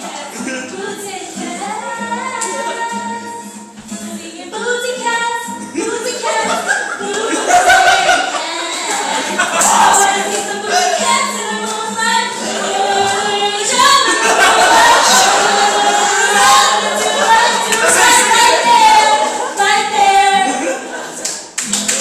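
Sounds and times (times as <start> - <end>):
women singing together: 0.0 - 21.6.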